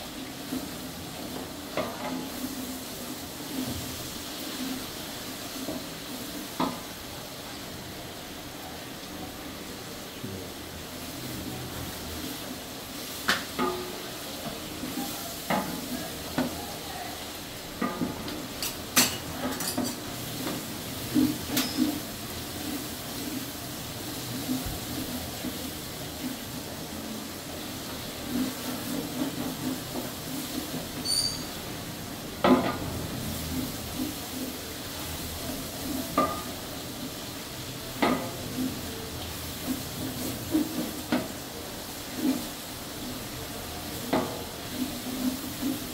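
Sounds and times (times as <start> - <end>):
oil sizzling: 0.0 - 45.9
spatula scraping pot: 21.0 - 23.0.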